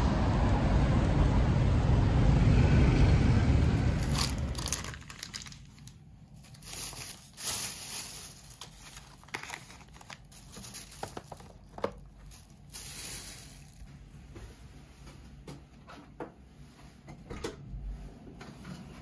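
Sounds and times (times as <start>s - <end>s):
plastic packets crinkling: 4.0s - 13.9s.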